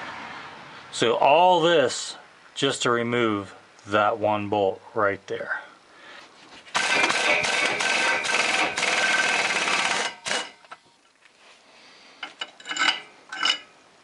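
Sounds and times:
impact wrench hammering: 6.7s - 10.8s.

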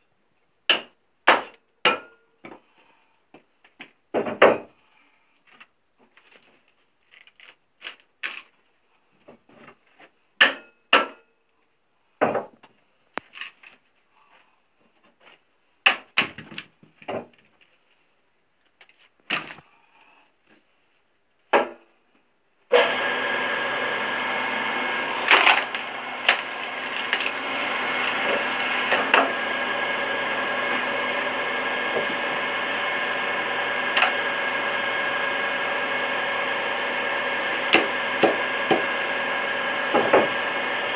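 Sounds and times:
motor hum with whine: 22.7s - 40.9s
wood cracking and splintering: 23.6s - 36.0s, 37.4s - 38.9s.

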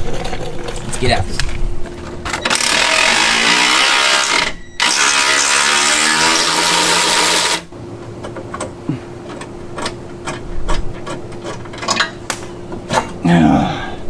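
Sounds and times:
power tool motor whirring: 2.4s - 7.7s.

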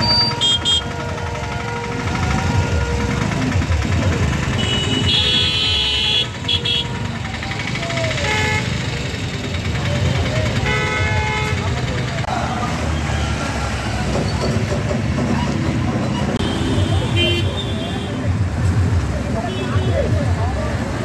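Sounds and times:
high-pitched car horn: 0.0s - 3.4s
motorcycle and car engines: 0.0s - 21.0s.

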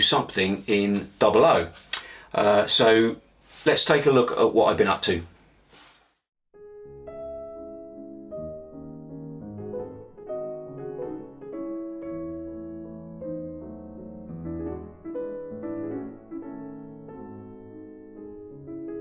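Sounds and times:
slow instrumental music: 6.5s - 19.0s.

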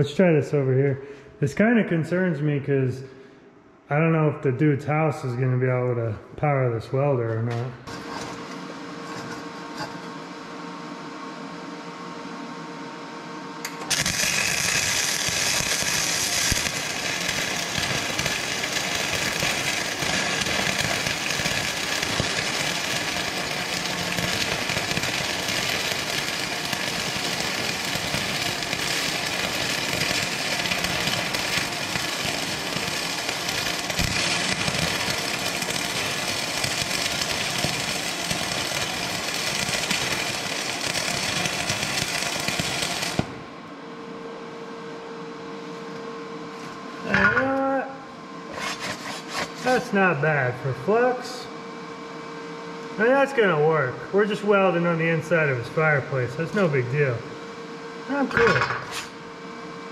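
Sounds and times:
welding arc crackle: 13.6s - 43.6s.

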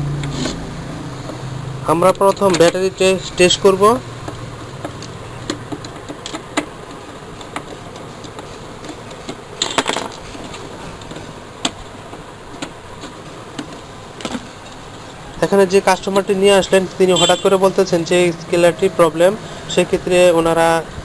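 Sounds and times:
steady background hiss: 0.0s - 21.0s
plastic rattles: 4.2s - 14.5s.

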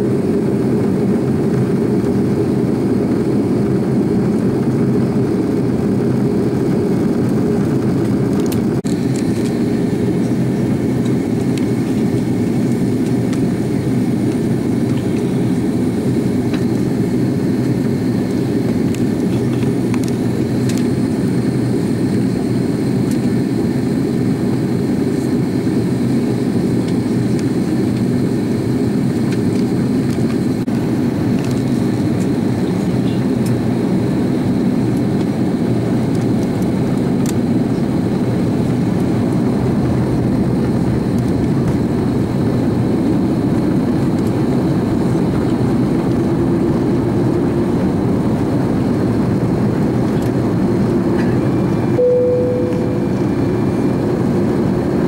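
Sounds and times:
airplane cabin engine drone: 0.0s - 55.0s.

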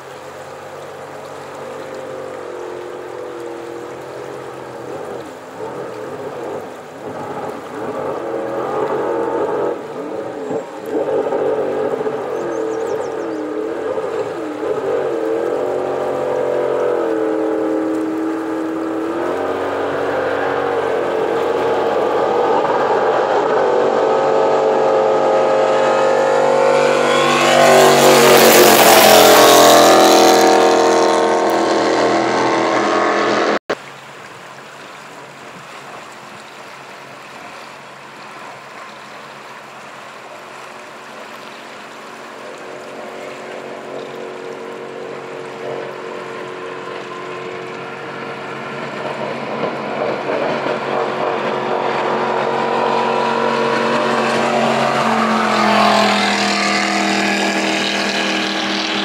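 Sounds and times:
faint steady engine: 0.0s - 28.2s, 29.0s - 59.0s
jet boat engines speeding past: 0.0s - 59.0s.

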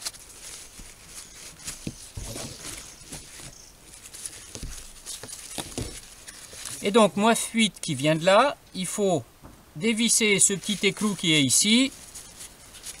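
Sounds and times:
paper tissue rustling: 0.0s - 7.2s, 9.9s - 13.0s.

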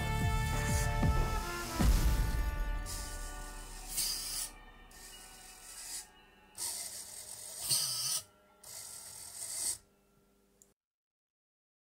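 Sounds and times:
faint background music: 0.0s - 10.8s
servo motors whirring: 3.8s - 9.8s.

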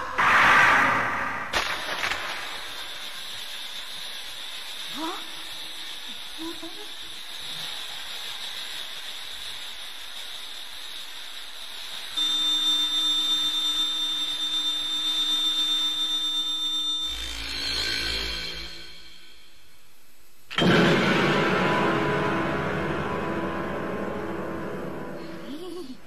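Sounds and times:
high electronic whine: 0.0s - 25.9s
steady hiss: 1.1s - 14.9s.

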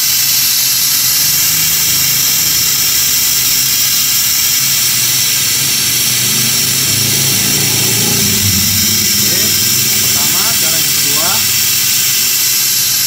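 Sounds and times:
suction pump hissing: 0.0s - 13.0s
low steady hum: 4.5s - 11.8s.

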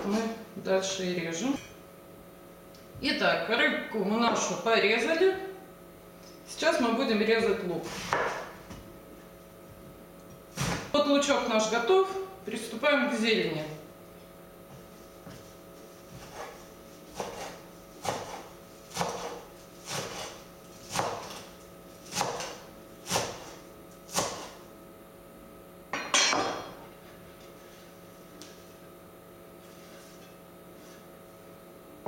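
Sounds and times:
knife chopping herbs on board: 16.1s - 24.6s.

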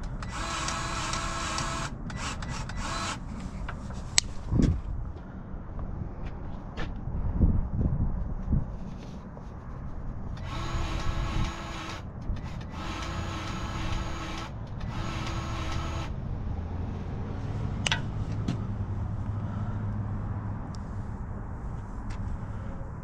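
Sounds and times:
grease gun whirring: 0.0s - 3.4s, 10.4s - 16.1s
low steady rumble: 0.0s - 23.0s.

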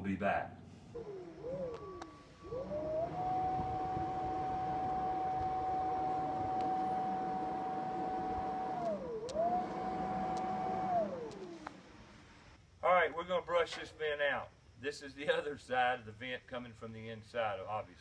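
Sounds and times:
electric blower motor whining: 0.9s - 12.1s.

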